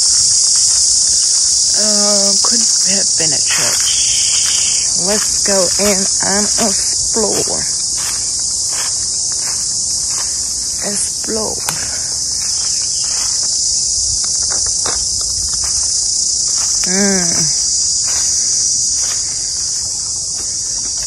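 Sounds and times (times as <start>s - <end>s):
insects shrilling: 0.0s - 21.0s.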